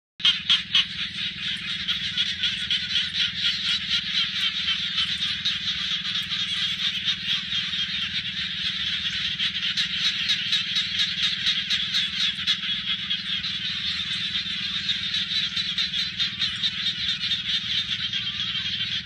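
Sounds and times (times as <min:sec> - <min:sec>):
frogs calling: 0:00.2 - 0:19.0
low steady drone: 0:00.2 - 0:19.0.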